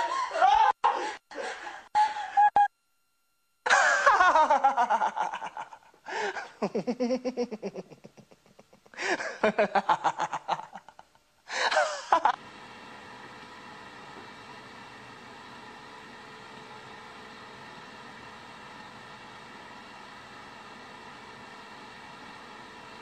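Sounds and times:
person laughing: 0.0 - 2.7, 3.7 - 12.4.

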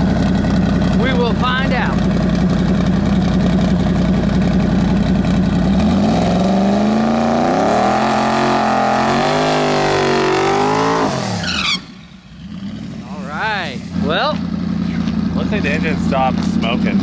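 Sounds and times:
car engine revving loudly: 5.4 - 17.0
tires spinning in burnout: 5.7 - 15.2.

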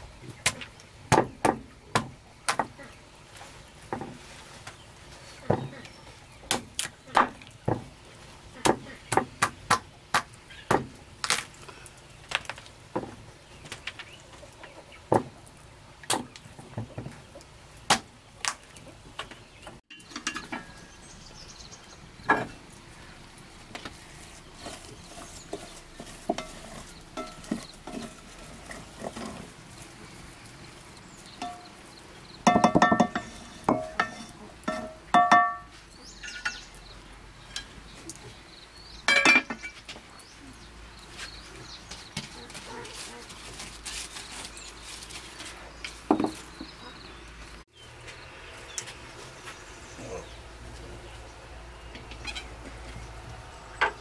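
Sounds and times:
metal pot lid clanking: 32.5 - 36.6.

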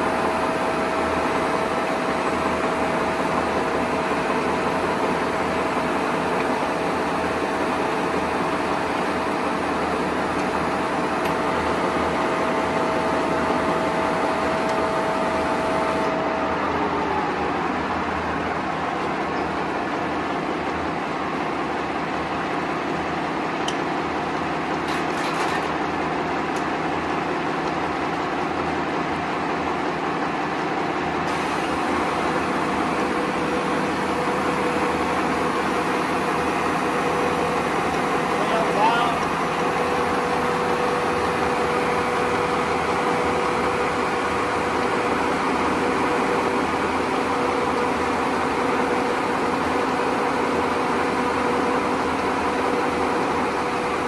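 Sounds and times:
whining gear tone: 0.0 - 20.9
lathe machine hum: 0.0 - 54.0.

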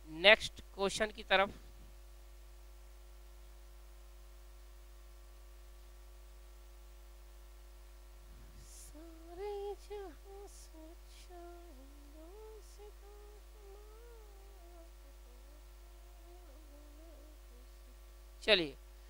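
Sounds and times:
faint hissing: 8.2 - 19.0
person humming: 8.6 - 18.0.

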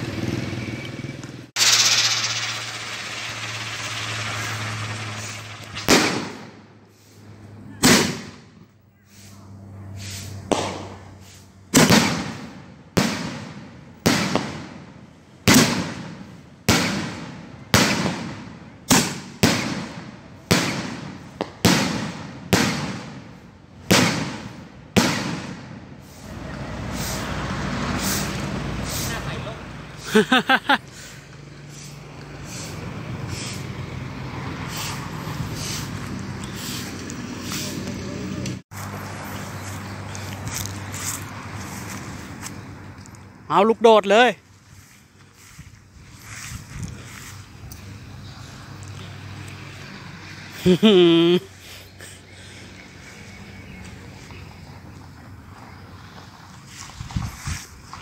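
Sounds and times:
firework shells bursting: 1.6 - 6.7.

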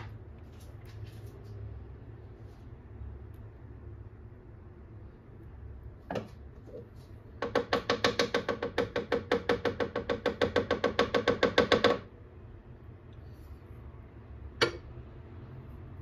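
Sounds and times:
utensil beating a cooking pot: 7.3 - 12.1, 14.6 - 15.0.

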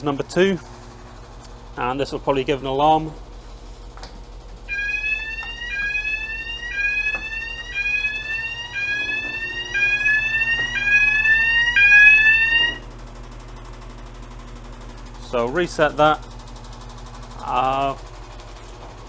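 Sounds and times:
two-tone electronic alarm whoop: 4.7 - 12.8.

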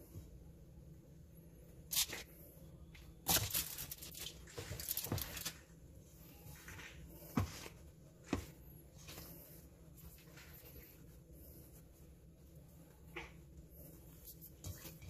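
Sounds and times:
dough handling in metal bowl: 2.9 - 15.0
aluminium foil crinkling: 3.2 - 5.6.

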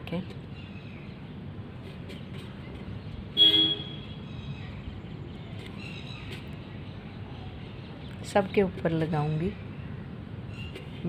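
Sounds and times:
low steady background noise: 0.0 - 11.0
loud horn toot: 3.4 - 4.0.

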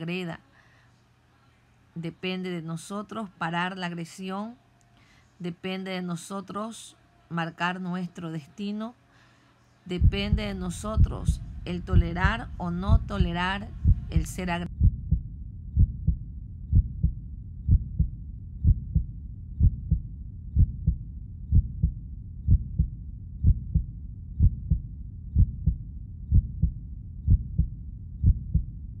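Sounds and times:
low rumble: 9.9 - 29.0
heartbeat-like double thump: 10.0 - 28.7.

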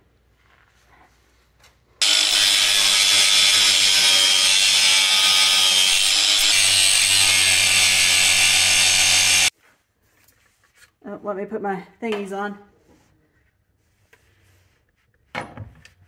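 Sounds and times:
angle grinder cutting metal: 2.0 - 9.5.

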